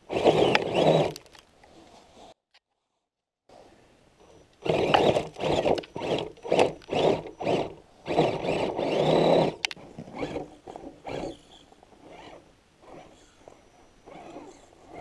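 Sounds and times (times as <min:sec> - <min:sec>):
electric motor whirring bursts: 0:00.0 - 0:01.2, 0:04.6 - 0:15.0.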